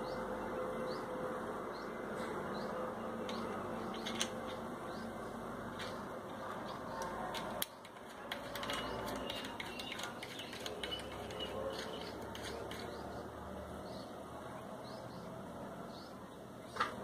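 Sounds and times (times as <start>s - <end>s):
small metal parts clicking: 7.0s - 13.0s.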